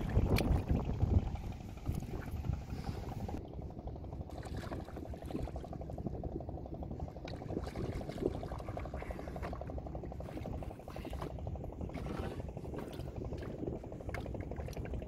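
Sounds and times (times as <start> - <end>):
person wading in water: 4.3 - 6.1, 7.0 - 15.0.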